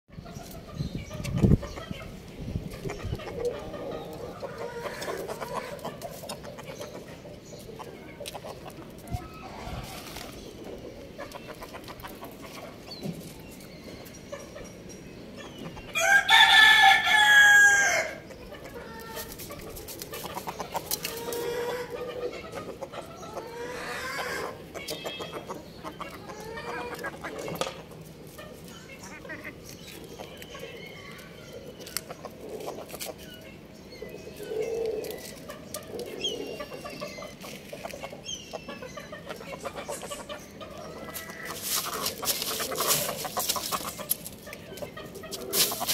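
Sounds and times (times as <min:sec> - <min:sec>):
chickens clucking: 0:00.1 - 0:45.9
rooster crowing: 0:16.0 - 0:18.2.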